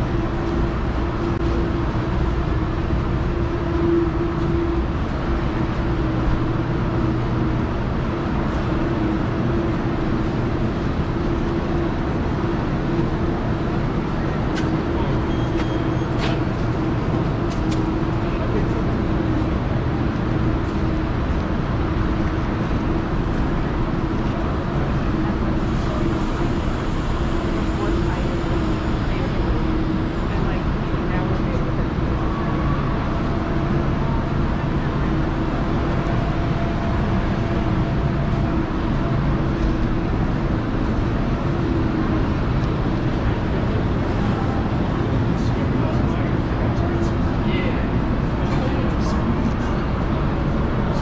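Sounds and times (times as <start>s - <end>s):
constant low hum: 0.0s - 51.0s
indoor market hall background noise: 0.0s - 51.0s.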